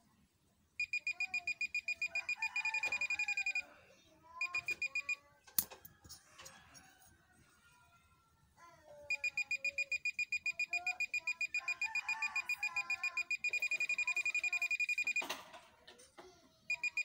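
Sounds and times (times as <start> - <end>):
metal detector beeping: 0.8 - 3.6, 9.1 - 15.4, 16.7 - 17.0.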